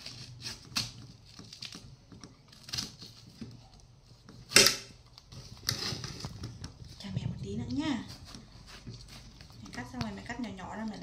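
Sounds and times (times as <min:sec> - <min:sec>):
knife slicing watermelon: 0:07.8 - 0:10.2.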